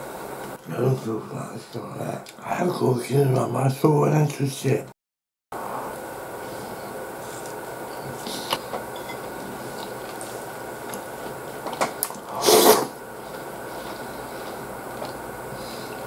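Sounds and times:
room hum: 0.0 - 5.0, 5.6 - 16.0
slurp from spoon: 12.3 - 12.9.

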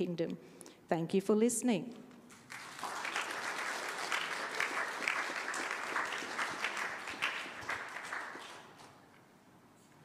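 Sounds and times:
audience applauding: 2.3 - 9.0.

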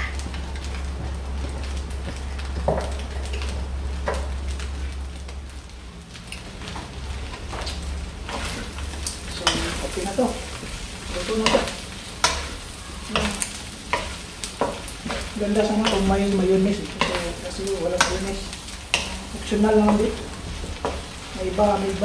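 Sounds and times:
meat and tofu sizzling in a wok: 0.0 - 22.0
wooden spatula scraping a pan: 6.7 - 22.0.

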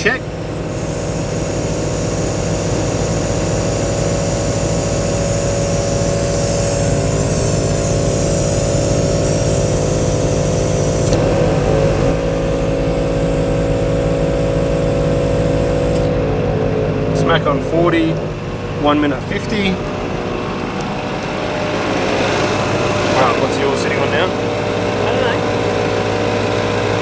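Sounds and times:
air compressor drone: 0.0 - 27.0
sharp click: 11.0 - 11.2, 15.9 - 16.1.

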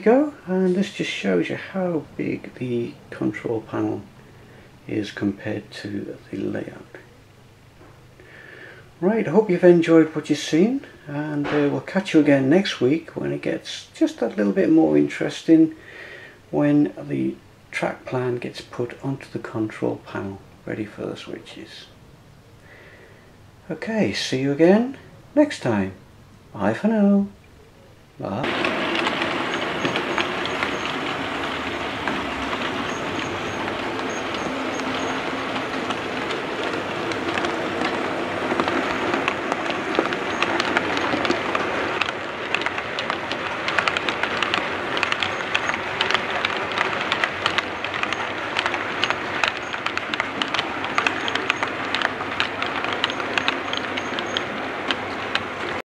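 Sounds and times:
model train running on track: 0.0 - 4.1, 4.8 - 7.0, 9.0 - 15.8, 28.2 - 55.8
sharp clicks: 28.4 - 55.8.

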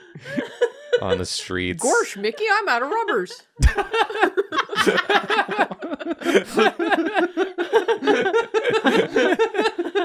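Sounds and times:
people laughing: 3.1 - 10.0.

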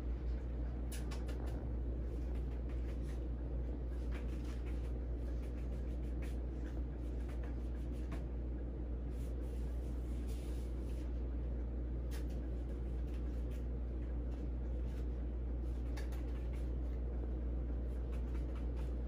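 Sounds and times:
steady low hum: 0.0 - 19.0
light scratching on floor: 1.0 - 8.4, 9.0 - 11.3.

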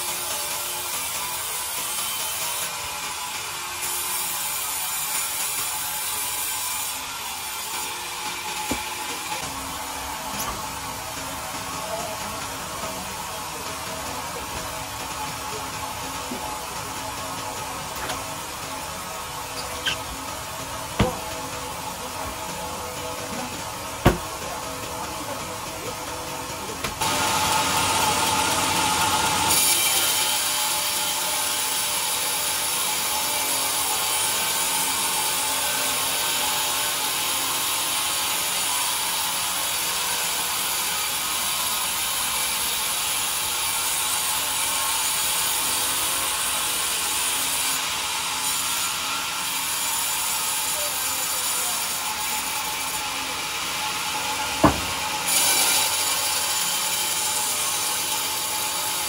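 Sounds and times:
band saw cutting log: 0.0 - 39.5, 40.5 - 59.0
sharp knock: 21.0 - 21.3, 24.0 - 24.4, 54.6 - 55.0.

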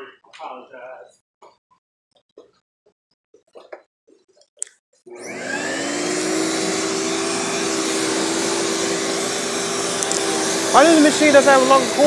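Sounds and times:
vacuum cleaner motor whine: 5.1 - 12.0.

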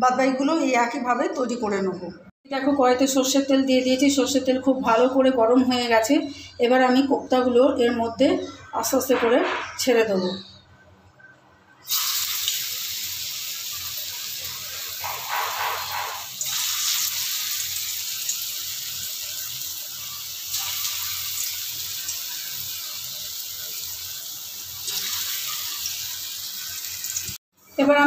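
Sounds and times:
food deep-frying in oil: 11.8 - 27.8.

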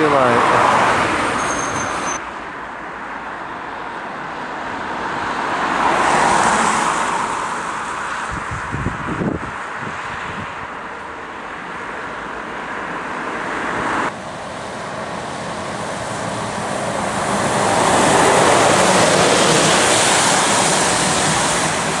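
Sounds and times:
road and wind noise: 0.0 - 22.0
tyres hissing on wet road: 13.8 - 22.0.

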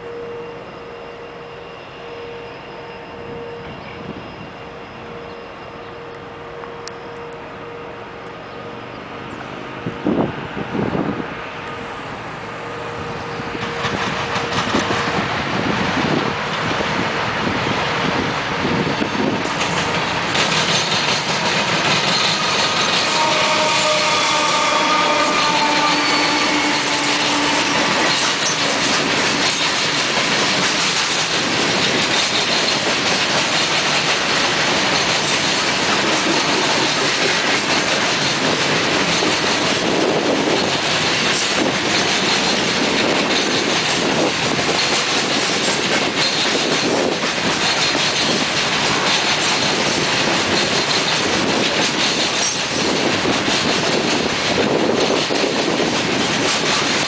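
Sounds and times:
steel wheels rushing on rail: 0.0 - 57.0
clickety-clack over rail joints: 13.2 - 57.0.

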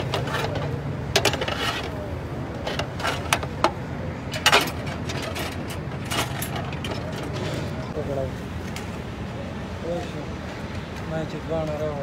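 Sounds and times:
metal skewers clinking and scraping: 0.0 - 8.0.

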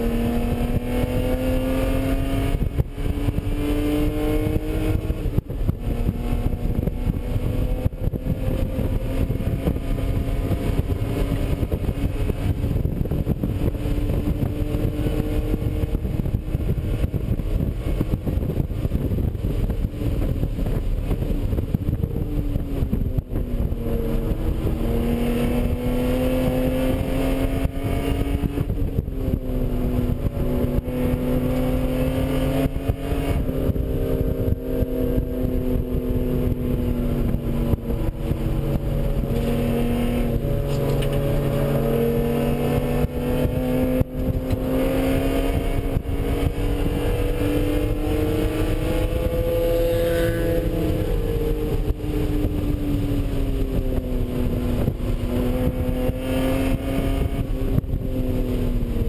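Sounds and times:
car engine at full throttle: 0.0 - 59.0
road and wind noise: 0.0 - 59.0.

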